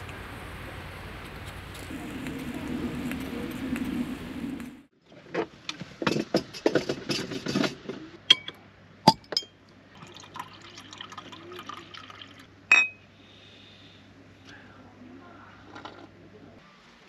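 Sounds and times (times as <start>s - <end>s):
ringing glass clinks: 12.7s - 13.0s.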